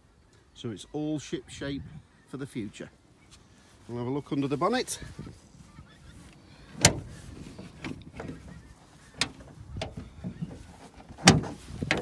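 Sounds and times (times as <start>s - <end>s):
knocks and clicks of bonnet: 6.2s - 12.0s.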